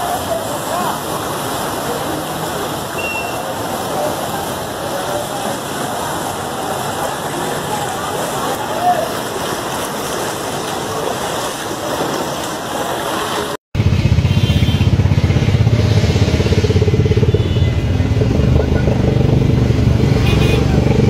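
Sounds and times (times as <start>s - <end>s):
floodwater rushing and splashing: 0.0s - 21.0s
vehicle engine running low: 13.8s - 21.0s.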